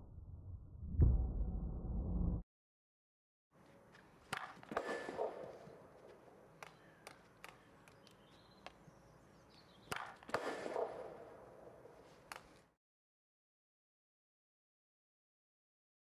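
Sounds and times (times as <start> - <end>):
hockey stick striking ball: 4.3 - 8.8, 9.8 - 11.4.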